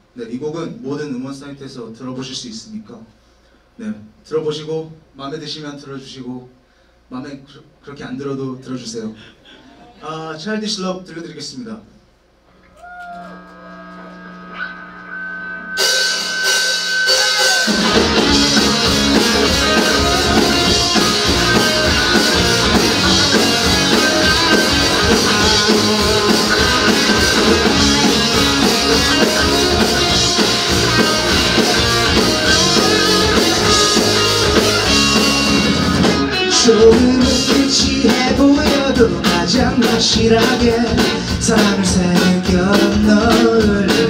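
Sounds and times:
live rock band playing: 0:13.3 - 0:44.0.

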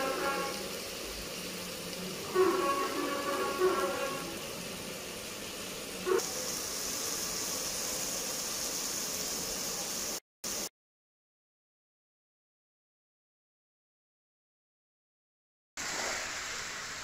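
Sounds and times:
onion sizzling in hot oil: 0:00.0 - 0:10.7, 0:15.8 - 0:17.0.

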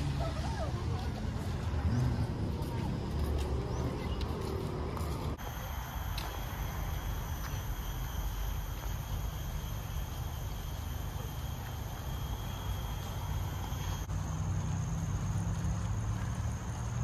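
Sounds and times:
continuous low rumble: 0:00.0 - 0:17.0
high-pitched insect chorus: 0:05.4 - 0:17.0.

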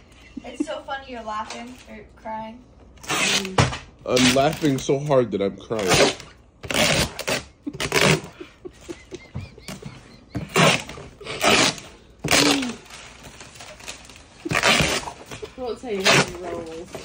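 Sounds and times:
breathy gasping laughter: 0:07.6 - 0:11.4.

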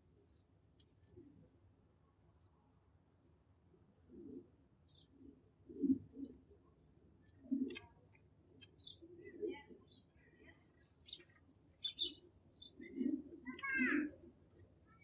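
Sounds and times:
small birds chirping: 0:00.1 - 0:01.7, 0:02.3 - 0:03.4, 0:04.2 - 0:15.0
pigeon cooing: 0:05.2 - 0:06.5, 0:12.8 - 0:14.1.

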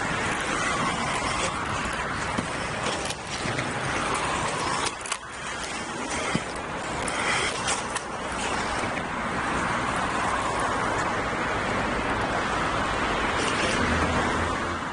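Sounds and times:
inline skate wheels on asphalt: 0:00.0 - 0:14.9
road traffic rushing: 0:00.0 - 0:14.9.

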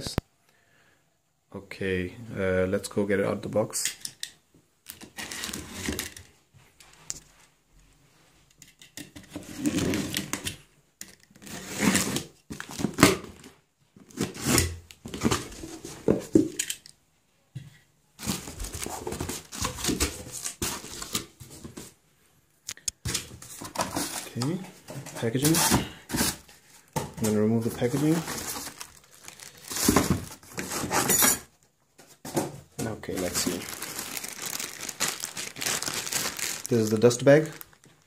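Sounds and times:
cardboard scraping and rustling: 0:27.2 - 0:31.2.

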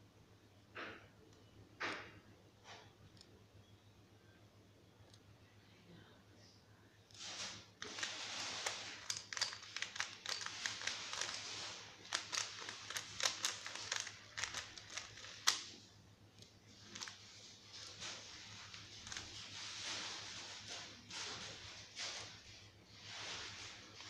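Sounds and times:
puzzle cube clicking: 0:07.9 - 0:15.7.

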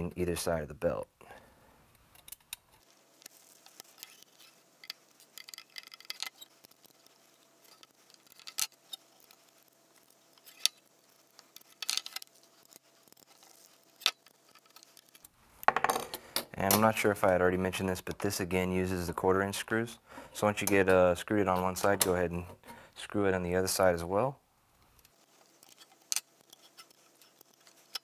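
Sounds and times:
clicks of metal parts handled: 0:03.6 - 0:07.0.

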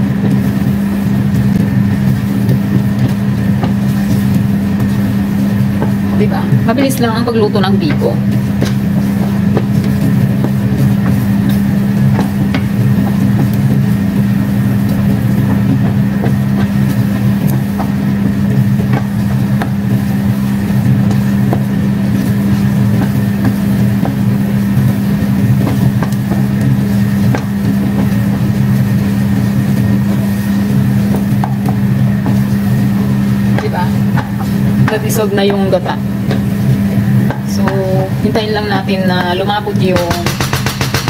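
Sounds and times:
low machine hum: 0:00.0 - 0:41.0
wooden spoon scraping a pan: 0:14.9 - 0:40.2.

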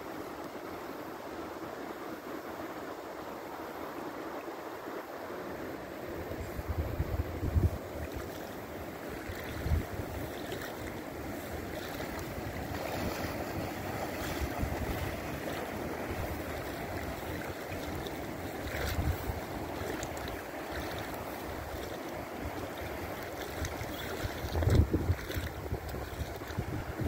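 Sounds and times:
river water rushing: 0:00.0 - 0:27.0
wind buffeting microphone: 0:06.2 - 0:08.5, 0:09.1 - 0:27.0.

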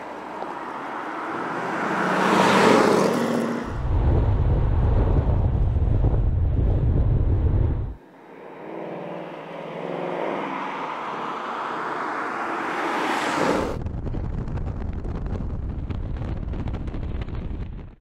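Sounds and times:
wind on microphone: 0:03.6 - 0:08.0, 0:13.6 - 0:18.0.

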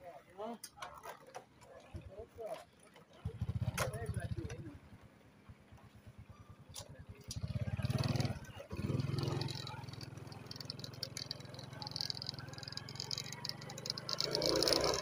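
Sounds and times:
small engine revving and running: 0:07.3 - 0:15.0.

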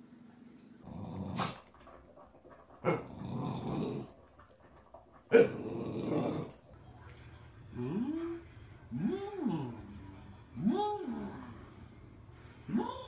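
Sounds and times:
dog growling: 0:00.8 - 0:06.7.

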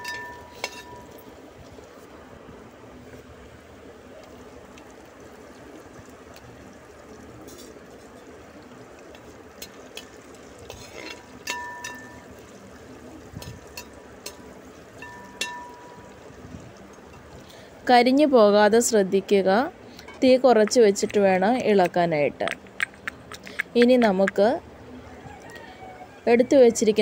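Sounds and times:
metal skimmer scraping a pan: 0:00.0 - 0:01.2, 0:07.4 - 0:08.3, 0:10.0 - 0:12.2
oil sizzling in a pan: 0:00.0 - 0:02.1, 0:03.1 - 0:17.9.

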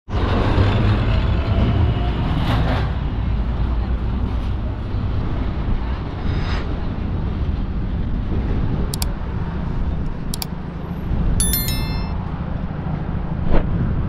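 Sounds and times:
ringing metallic ding: 0:11.4 - 0:12.2
sharp metallic clinks: 0:11.4 - 0:12.2.

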